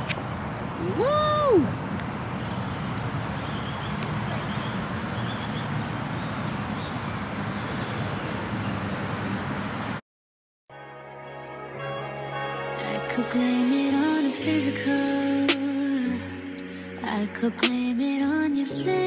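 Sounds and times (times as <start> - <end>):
distant traffic rumble: 0.0 - 10.0.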